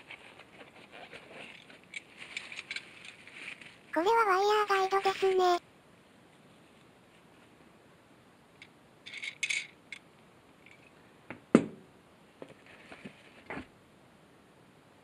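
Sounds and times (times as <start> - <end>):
rustling scrapes of packing: 0.0 - 3.9.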